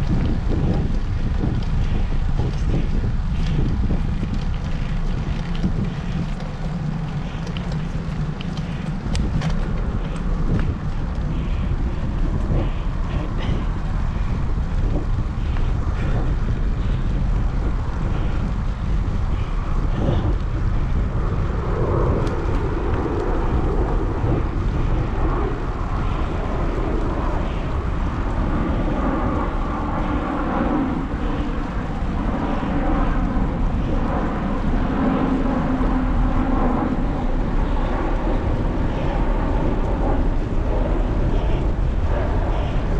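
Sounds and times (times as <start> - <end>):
steady multi-tone hum: 0.0 - 42.9
wind rumbling over microphone: 0.0 - 42.9.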